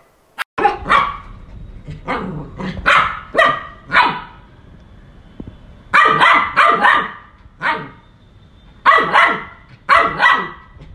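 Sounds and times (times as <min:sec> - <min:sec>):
puppy barking: 0:00.6 - 0:01.4, 0:02.0 - 0:04.4, 0:05.9 - 0:08.0, 0:08.8 - 0:10.8.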